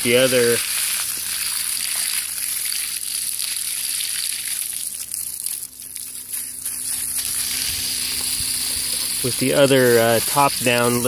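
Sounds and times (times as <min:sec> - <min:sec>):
hose water splashing on wood chips: 0:00.0 - 0:11.0.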